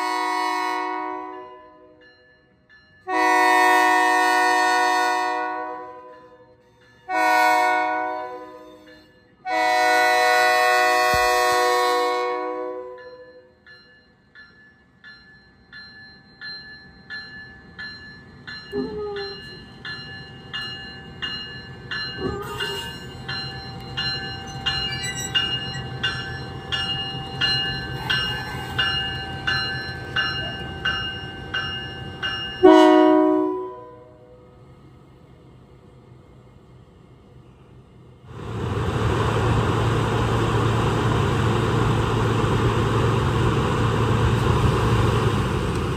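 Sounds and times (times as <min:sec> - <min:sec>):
locomotive horn: 0:00.0 - 0:02.0, 0:03.1 - 0:06.4, 0:07.1 - 0:13.0, 0:32.6 - 0:34.4
locomotive bell ringing: 0:01.2 - 0:04.8, 0:05.6 - 0:10.2, 0:12.4 - 0:34.5
brief squeals: 0:24.4 - 0:26.1.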